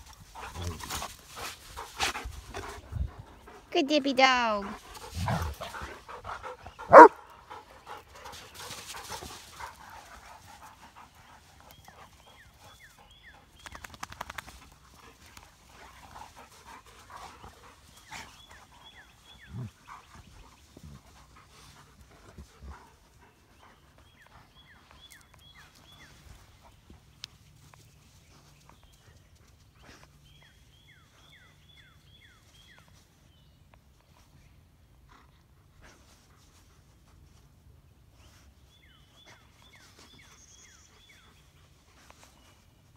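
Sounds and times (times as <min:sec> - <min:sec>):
dogs scuffling in dirt: 0:00.0 - 0:03.7, 0:04.6 - 0:30.7
dogs panting: 0:00.0 - 0:30.5
dog barking: 0:06.9 - 0:07.2.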